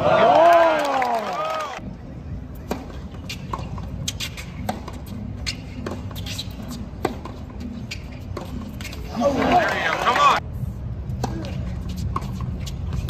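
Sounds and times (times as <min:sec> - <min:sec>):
low stadium murmur: 0:00.0 - 0:06.1, 0:06.7 - 0:13.0
racket striking tennis ball: 0:02.6 - 0:09.6.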